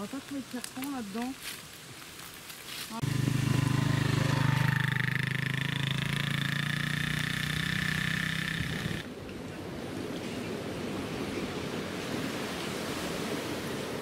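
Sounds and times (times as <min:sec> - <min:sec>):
small motorbike engine running: 0:03.0 - 0:09.1.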